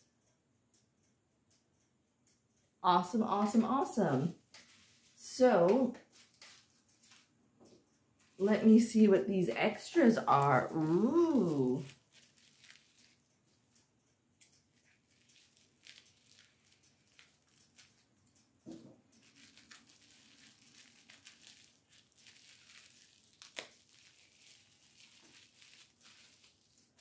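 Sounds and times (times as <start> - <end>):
packaging crinkling and tearing: 6.0 - 7.3, 10.3 - 13.8, 14.6 - 18.2, 19.1 - 27.0.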